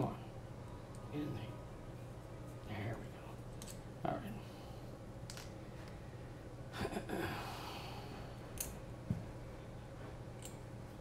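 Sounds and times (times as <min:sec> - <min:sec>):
man sighing: 0:07.1 - 0:08.0.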